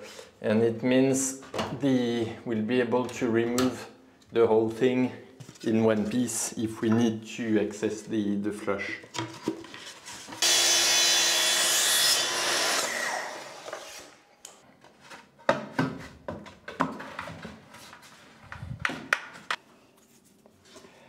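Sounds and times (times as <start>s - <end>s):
circular saw cutting wood: 10.4s - 14.2s
saw blade spinning down: 10.4s - 14.2s.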